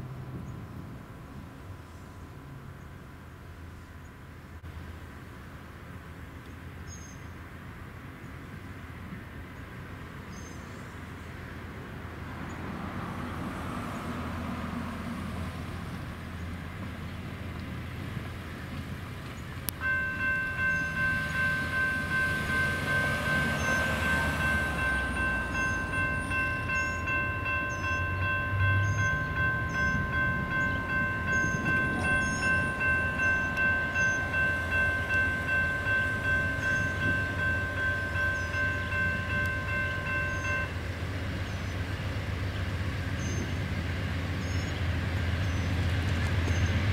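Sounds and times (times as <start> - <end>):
diesel locomotive rumble: 0.0 - 46.9
birds chirping: 19.3 - 46.9
crossing bell click: 19.7 - 40.9
crossing warning bell ringing: 19.7 - 41.8.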